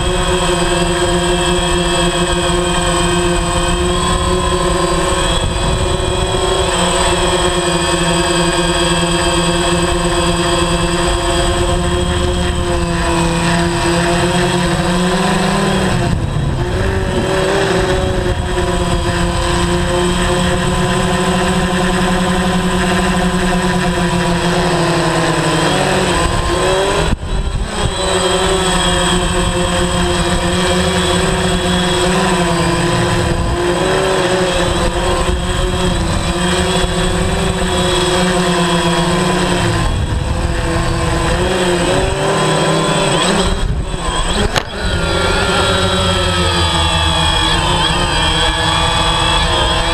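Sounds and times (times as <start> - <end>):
drone propellers whining: 0.0 - 49.9.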